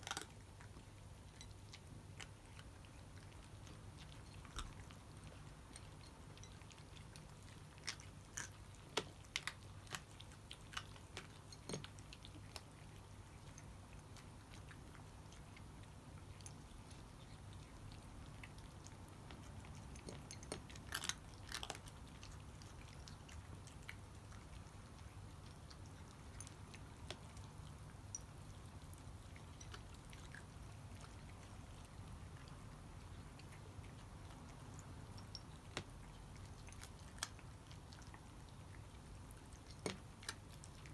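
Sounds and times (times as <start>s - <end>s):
cats crunching dry kibble: 0.0s - 40.9s
low steady hum: 0.0s - 40.9s.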